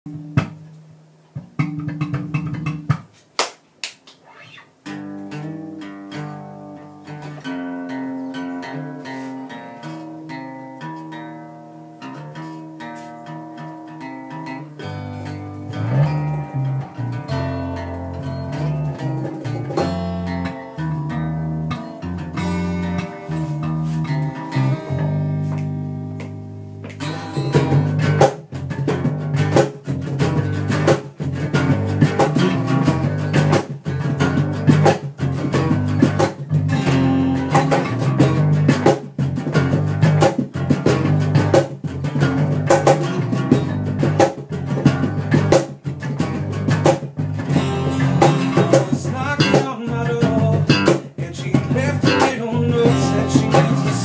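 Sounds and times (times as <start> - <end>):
acoustic guitars playing: 0.1 - 3.3, 4.2 - 54.0
bass guitar low notes: 14.8 - 54.0.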